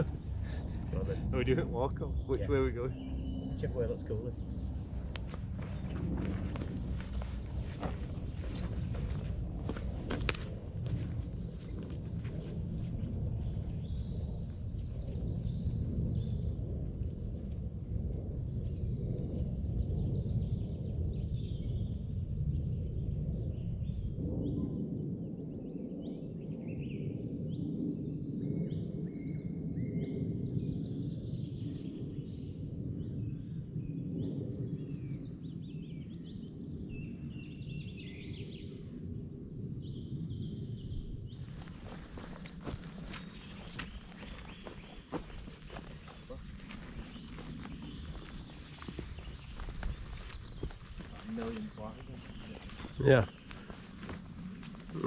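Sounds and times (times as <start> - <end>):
birds chirping and trilling: 0.0 - 18.9, 19.7 - 55.0
low background rumble: 0.0 - 25.5.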